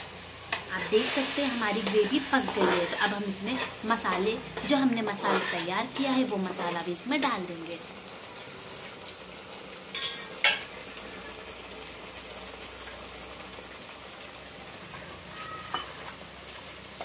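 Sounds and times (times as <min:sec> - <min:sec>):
gravy sizzling in a pan: 0:00.0 - 0:17.0.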